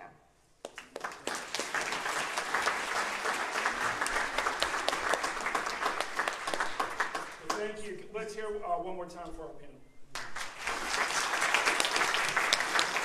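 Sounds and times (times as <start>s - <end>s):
audience applauding: 0.6s - 7.8s, 10.1s - 13.0s.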